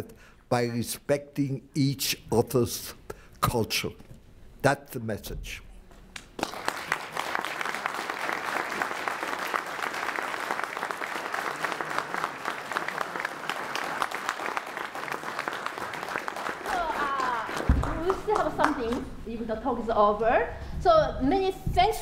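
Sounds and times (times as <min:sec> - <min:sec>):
audience applauding: 0:06.2 - 0:19.1.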